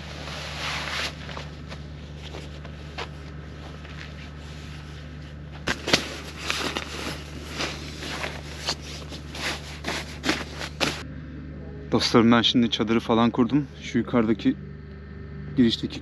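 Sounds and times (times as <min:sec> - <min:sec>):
sleeping bag rustling: 0:00.0 - 0:11.0
generator humming: 0:00.0 - 0:16.0.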